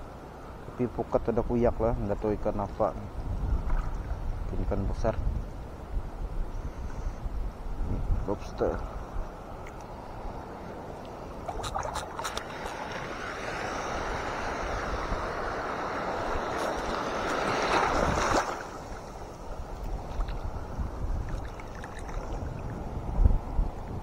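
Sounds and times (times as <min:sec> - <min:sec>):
sea water sloshing: 0:09.6 - 0:22.8.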